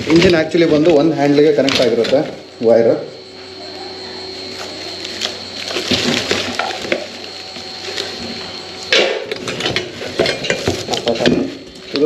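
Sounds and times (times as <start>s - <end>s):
plastic packaging crinkling: 4.5s - 8.8s
parts knocking and clattering: 8.2s - 11.8s.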